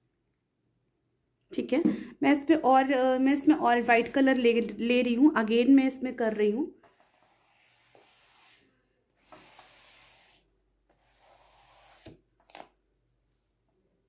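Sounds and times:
sponge rubbing on canvas: 0:03.4 - 0:04.7, 0:06.0 - 0:12.2.

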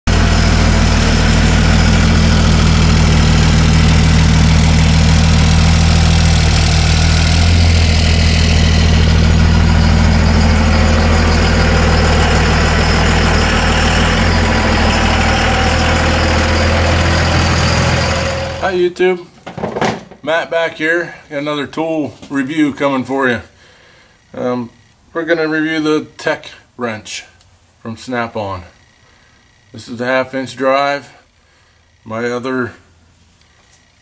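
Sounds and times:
diesel engine idling: 0:00.1 - 0:18.9.

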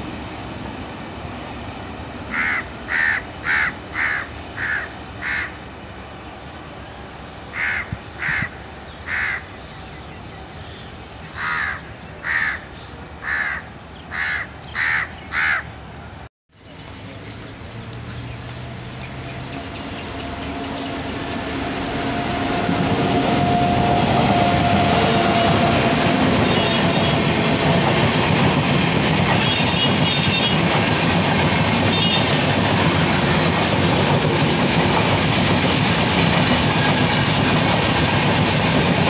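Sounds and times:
crow cawing: 0:02.3 - 0:05.6, 0:07.5 - 0:09.5, 0:11.4 - 0:15.7.

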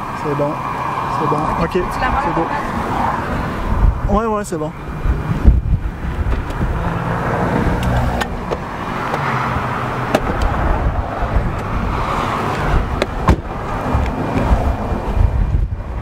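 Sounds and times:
storm wind buffeting microphone: 0:01.0 - 0:16.0.

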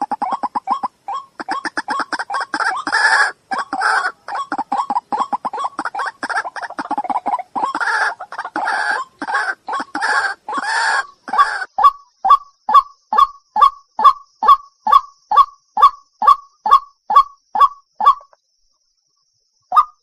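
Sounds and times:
bird harsh croaking calls: 0:00.0 - 0:18.4.

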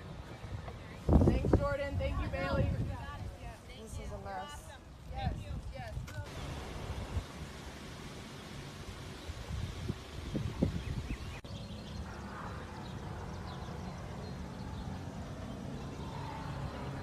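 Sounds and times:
wind rumble on microphone: 0:00.0 - 0:04.2, 0:05.0 - 0:07.6, 0:09.0 - 0:17.0.

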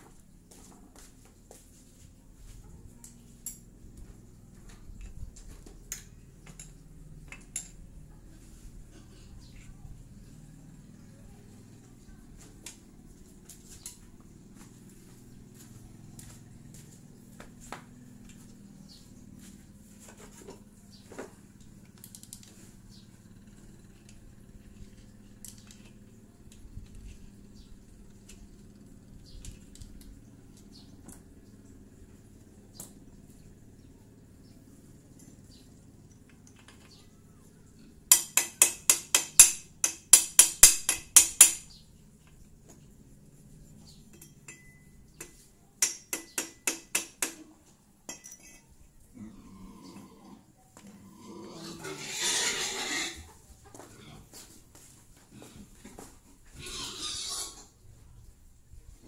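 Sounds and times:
hand tools clicking and tapping: 0:04.7 - 0:07.9, 0:38.1 - 0:42.6, 0:44.1 - 0:48.7
metal tool clinking on metal: 0:44.1 - 0:47.1, 0:48.1 - 0:48.8.

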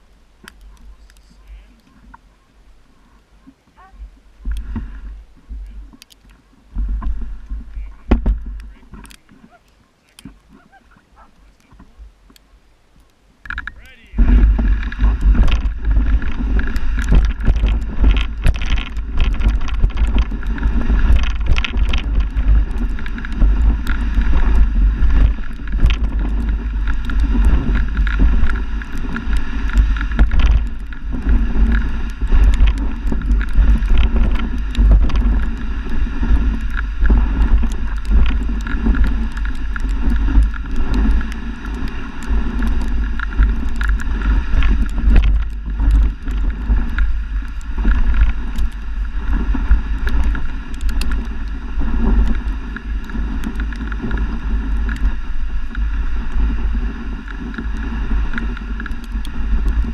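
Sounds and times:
continuous rushing noise: 0:00.0 - 0:59.9
wind rumble on microphone: 0:00.0 - 0:59.9
knocks and rattles: 0:13.5 - 0:23.2.

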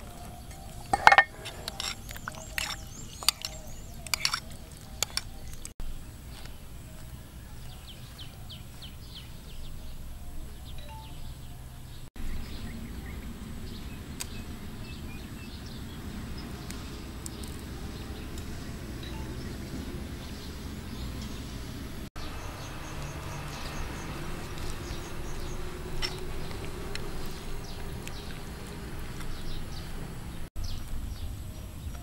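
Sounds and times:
metal spoon clinking against bowl: 0:00.6 - 0:05.3.

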